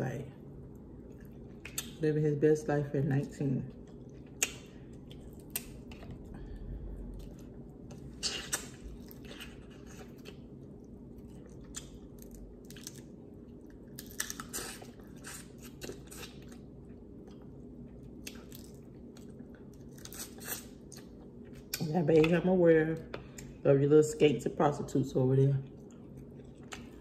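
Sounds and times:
wet chewing and smacking: 0:00.6 - 0:02.0, 0:03.7 - 0:22.3, 0:25.6 - 0:27.0.

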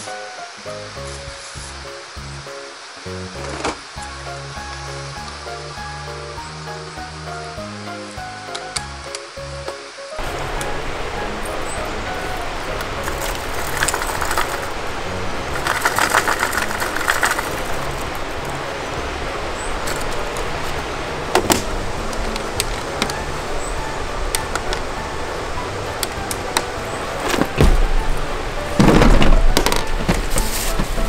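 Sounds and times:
background music: 0:00.0 - 0:31.0
steady noise: 0:00.0 - 0:31.0
plastic cases clicking and rattling: 0:15.6 - 0:17.6
plastic box thump: 0:27.3 - 0:27.9, 0:28.8 - 0:30.4.

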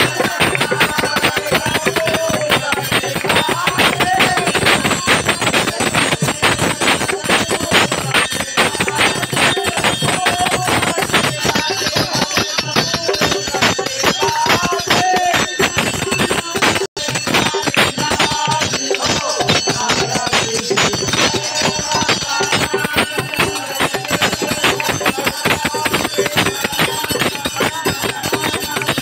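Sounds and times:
bells and cymbals clanging: 0:00.0 - 0:29.0
group of voices singing: 0:00.0 - 0:29.0.

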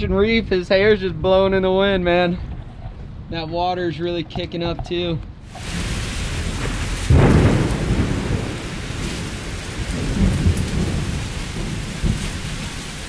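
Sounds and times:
steady rain: 0:05.5 - 0:13.0
thunder rumbling: 0:05.6 - 0:13.0.

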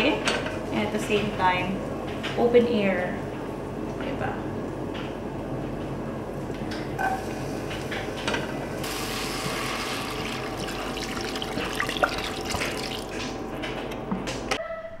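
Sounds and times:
water pouring into pot: 0:08.8 - 0:13.4.

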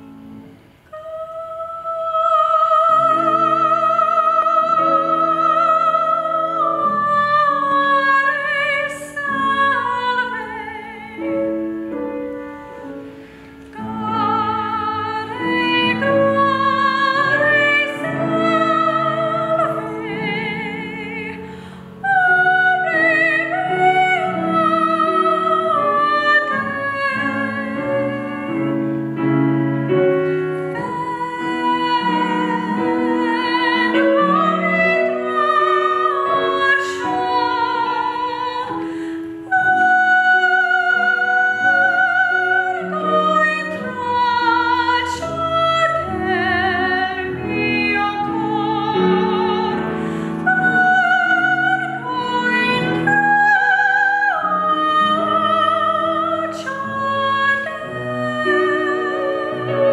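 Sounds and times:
grand piano: 0:00.0 - 0:59.9
woman singing operatically: 0:00.9 - 0:11.7, 0:13.8 - 0:28.9, 0:30.7 - 0:59.9.

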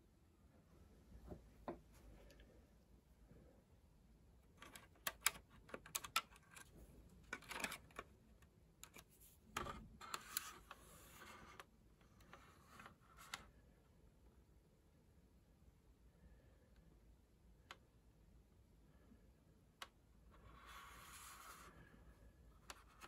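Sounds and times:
small sharp plastic clicks: 0:04.5 - 0:06.7
plastic model scraping and rubbing: 0:04.6 - 0:08.1, 0:08.8 - 0:13.5, 0:20.3 - 0:21.9, 0:22.6 - 0:23.0.

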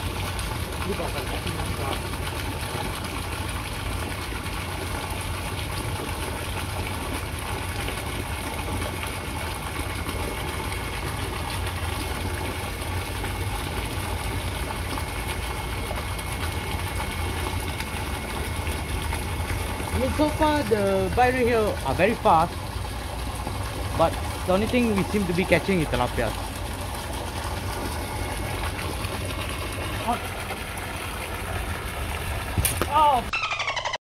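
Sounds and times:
motor running with hum and hiss: 0:00.0 - 0:33.3.

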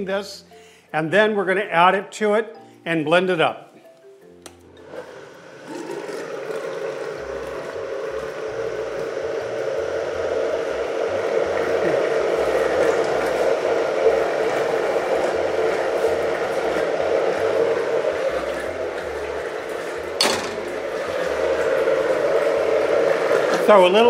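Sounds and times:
countertop blender running: 0:04.7 - 0:24.0.

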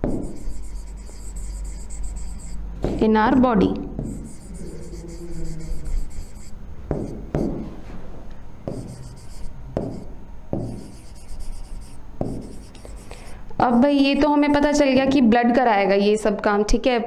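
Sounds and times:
pen writing on touchscreen: 0:00.0 - 0:02.7, 0:04.0 - 0:07.6, 0:08.7 - 0:13.4
pen tapping on screen: 0:00.0 - 0:03.1, 0:03.7 - 0:07.6, 0:08.7 - 0:13.3.

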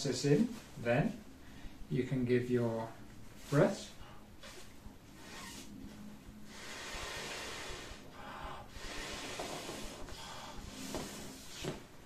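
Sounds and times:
man blowing into pillow: 0:04.4 - 0:11.8.

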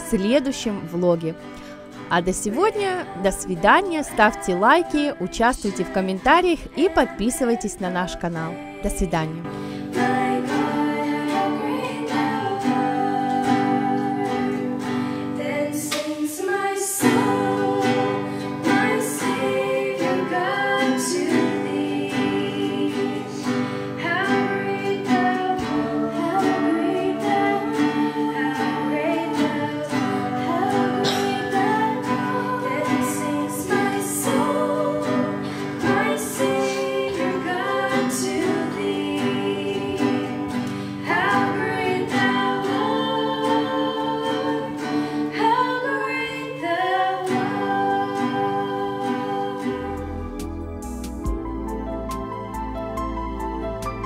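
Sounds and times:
song with singing and guitar: 0:00.0 - 0:54.0.

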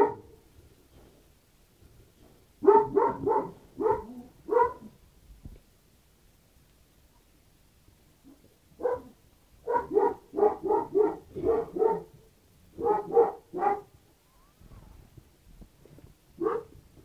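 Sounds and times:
dog yelping: 0:02.6 - 0:04.9, 0:08.8 - 0:12.1, 0:12.8 - 0:14.6.

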